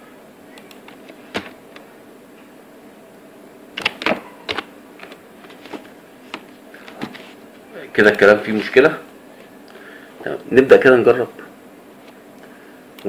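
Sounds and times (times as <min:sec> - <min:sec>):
steady low hum: 0:00.0 - 0:13.0
keyboard and mouse clicks: 0:03.8 - 0:06.4.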